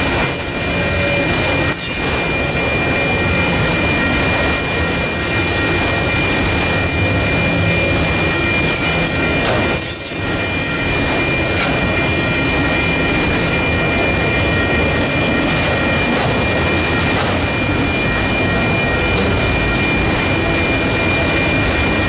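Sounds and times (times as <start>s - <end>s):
high-pitched ringing tone: 0.0s - 22.0s
rail cars clattering: 0.0s - 22.0s
train wheels on rails: 0.0s - 22.0s.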